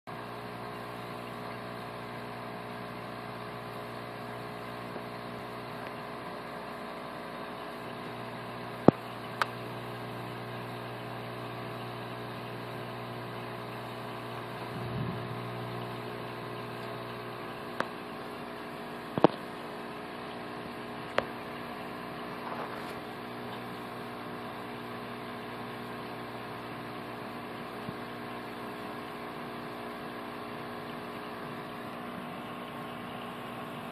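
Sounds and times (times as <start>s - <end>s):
steady mechanical hum: 0.1s - 33.9s
brief low rumble: 14.7s - 15.4s.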